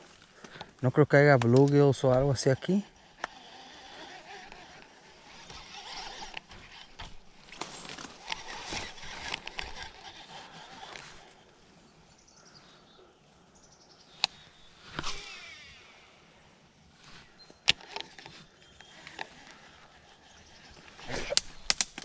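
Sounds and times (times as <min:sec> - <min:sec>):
fishing reel gears whirring: 0:02.2 - 0:11.4, 0:17.0 - 0:22.0.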